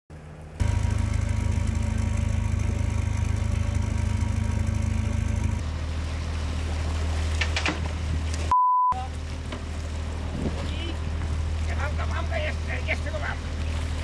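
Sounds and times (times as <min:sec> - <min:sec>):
boat engine throbbing: 0:00.2 - 0:14.0
sharp knocks or splashes: 0:06.9 - 0:08.5.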